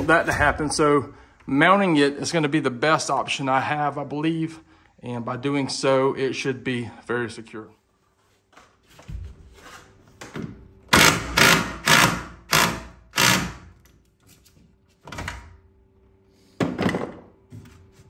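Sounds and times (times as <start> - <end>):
cordless drill driving screw: 10.9 - 13.7.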